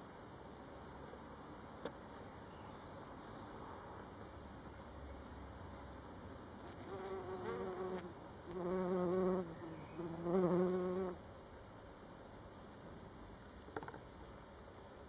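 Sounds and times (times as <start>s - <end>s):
bumblebee buzzing: 6.6s - 11.2s.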